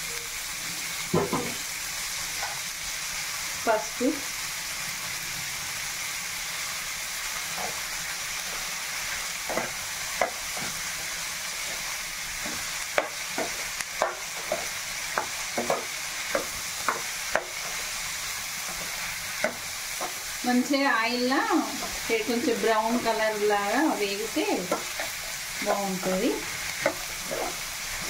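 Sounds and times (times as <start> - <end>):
vegetables sizzling in oil: 0.0 - 28.0
metal spatula scraping pan: 26.0 - 28.0.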